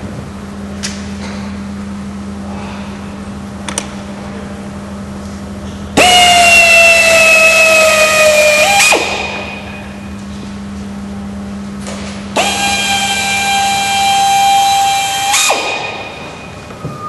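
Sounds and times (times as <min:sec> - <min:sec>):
power drill whine: 0:12.4 - 0:17.0.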